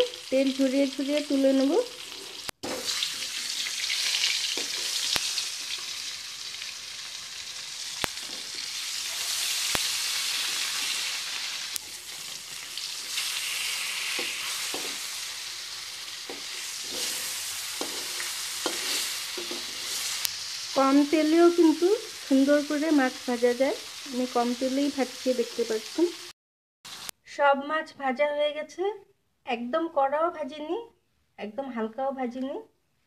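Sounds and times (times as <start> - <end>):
fish sizzling in oil: 0.0 - 26.3, 26.9 - 27.1
metal spatula scraping pan: 14.1 - 15.2, 16.3 - 20.2.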